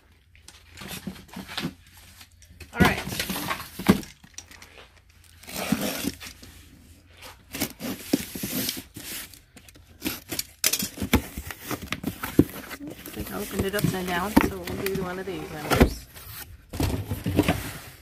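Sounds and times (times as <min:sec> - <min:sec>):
cardboard crinkling: 0:00.3 - 0:18.0.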